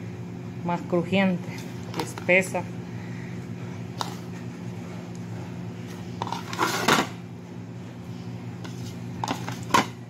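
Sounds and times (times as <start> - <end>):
steady low hum: 0.0 - 10.0
scraping food off a plate: 6.2 - 7.1.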